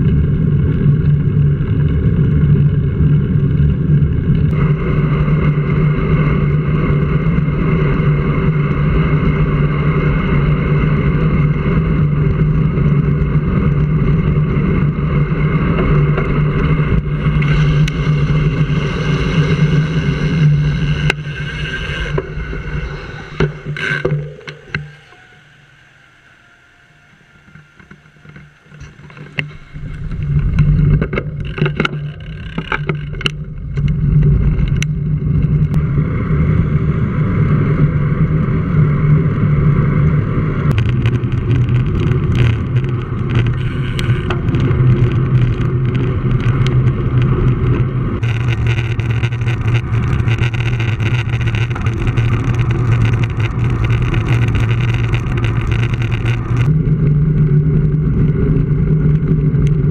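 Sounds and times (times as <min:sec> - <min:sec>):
road rumble: 0:00.0 - 0:59.9
wind buffeting microphone: 0:27.2 - 0:59.9.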